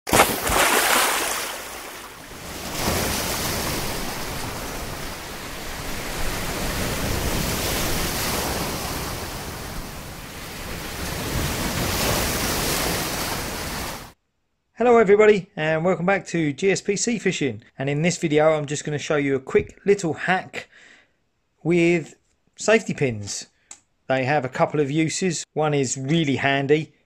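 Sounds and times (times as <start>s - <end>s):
waves breaking: 0.1s - 14.2s.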